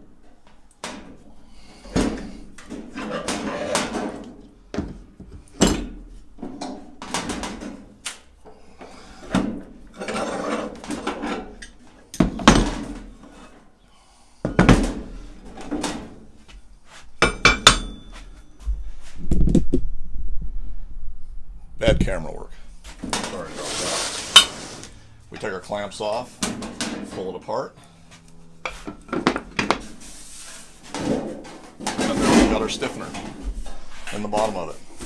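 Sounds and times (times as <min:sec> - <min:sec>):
rubbing and handling noise: 0:15.0 - 0:19.9, 0:21.8 - 0:27.3, 0:28.0 - 0:35.0
ringing metal clank: 0:17.2 - 0:18.5.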